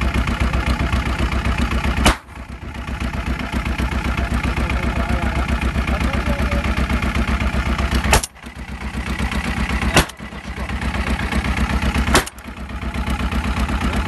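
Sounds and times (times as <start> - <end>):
boat motor pulsing: 0.0 - 14.0
shotgun shots: 2.0 - 2.4, 8.1 - 8.4, 9.9 - 10.3, 12.1 - 12.4.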